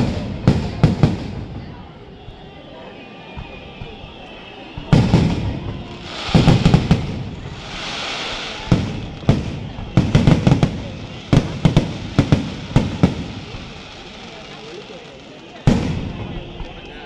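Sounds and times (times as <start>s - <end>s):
firecrackers banging: 0.0s - 17.0s
firework hissing rush: 3.8s - 16.8s.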